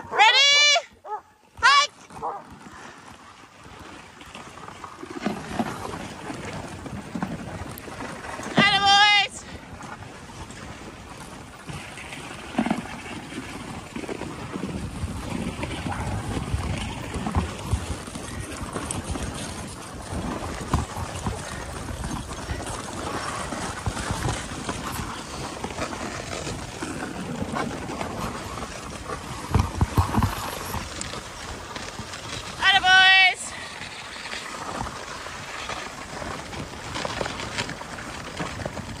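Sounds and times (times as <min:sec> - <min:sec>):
sled rattling: 0:00.0 - 0:39.0
sled runners on snow: 0:00.0 - 0:39.0
sled knocking over bumps: 0:11.8 - 0:39.0.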